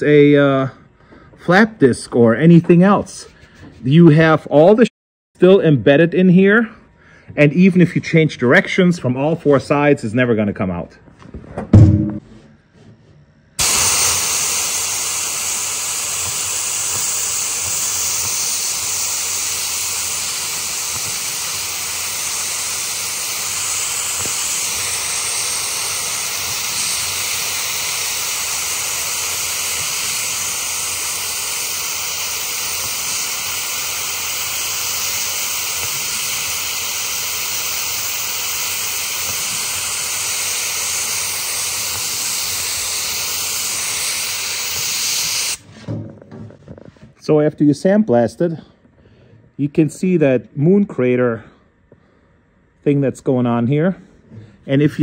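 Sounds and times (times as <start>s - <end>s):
sandblaster hissing on metal: 13.6s - 45.7s.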